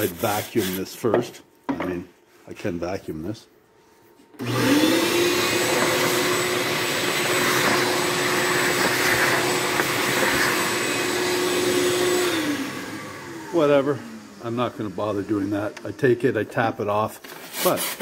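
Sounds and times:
vacuum cleaner motor running: 4.4s - 16.4s.

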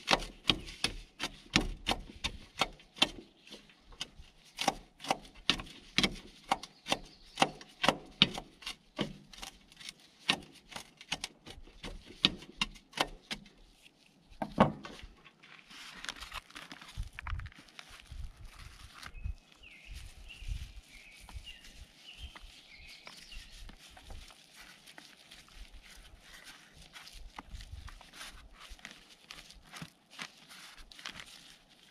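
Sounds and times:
soft rustling: 8.5s - 31.9s.

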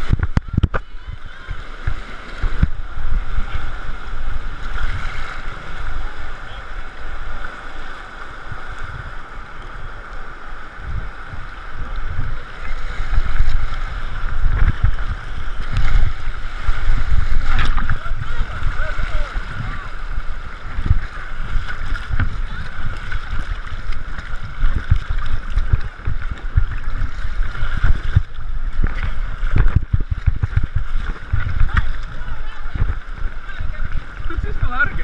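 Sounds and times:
river rapids churning: 0.0s - 35.0s
low rumbling knocks: 23.9s - 33.4s.

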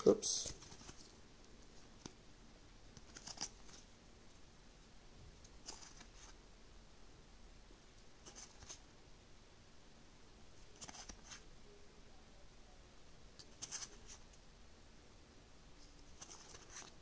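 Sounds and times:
cards swishing: 5.6s - 6.4s.

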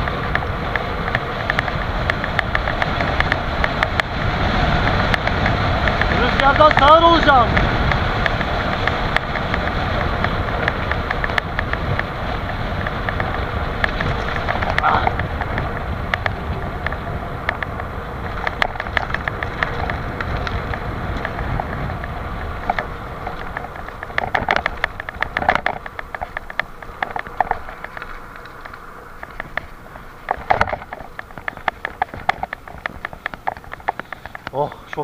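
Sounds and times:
bicycle rattling on rough road: 0.0s - 35.0s
wind buffeting microphone: 0.0s - 35.0s.

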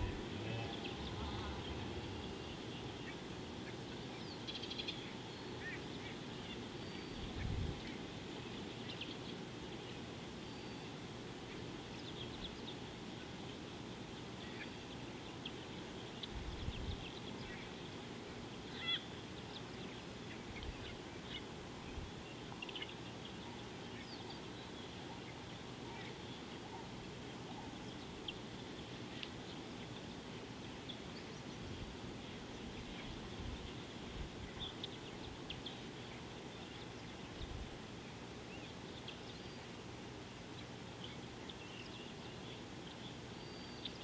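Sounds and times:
low rumble: 0.0s - 2.8s
outdoor background hiss: 0.0s - 44.0s.

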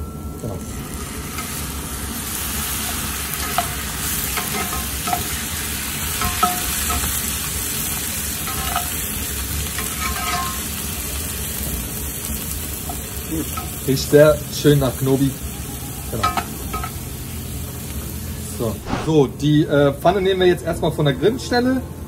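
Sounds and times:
paste sizzling in a skillet: 0.7s - 19.0s
spatula clinking against pan: 3.4s - 5.3s, 6.2s - 7.2s, 8.5s - 9.0s, 9.8s - 10.6s, 16.2s - 17.0s.

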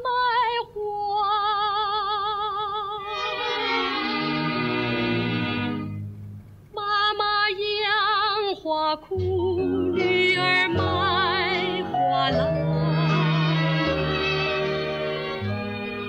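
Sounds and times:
woman singing with vibrato: 0.0s - 4.0s, 6.7s - 14.3s
instrumental accompaniment: 3.0s - 6.7s, 9.1s - 16.0s.

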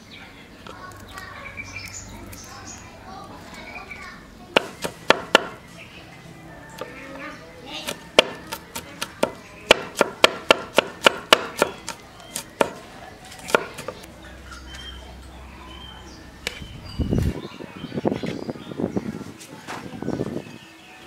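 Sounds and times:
cleaver chopping on wooden board: 4.6s - 5.6s, 7.8s - 12.8s, 13.4s - 14.0s.

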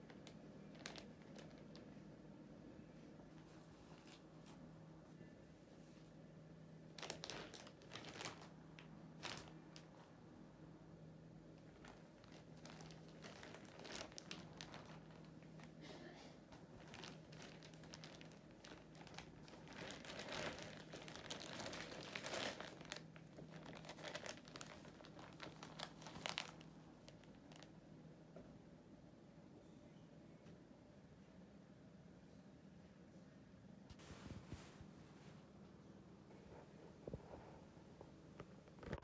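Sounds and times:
plastic bag crinkling: 0.0s - 1.9s, 3.8s - 4.6s, 6.9s - 9.9s, 11.6s - 27.7s.

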